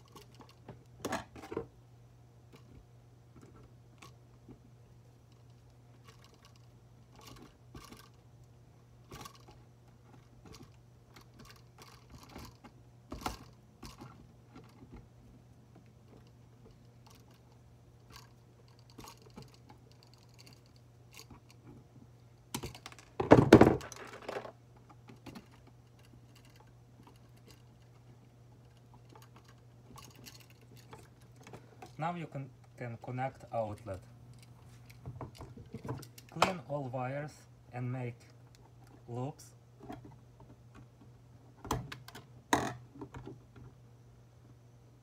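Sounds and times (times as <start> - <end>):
clatter of tool handling: 22.6 - 28.0.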